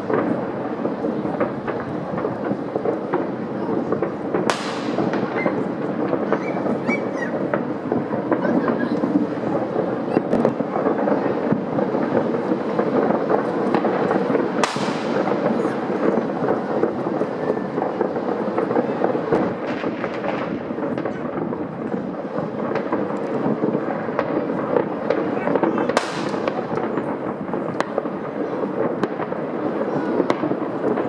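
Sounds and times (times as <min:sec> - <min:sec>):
fireworks crackling: 0:00.0 - 0:31.0
loud firework bang: 0:00.0 - 0:31.0.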